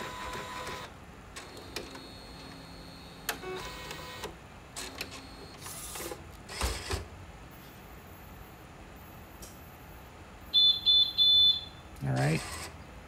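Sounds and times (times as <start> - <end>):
printer mechanical whir: 0.0 - 7.1, 12.0 - 12.8.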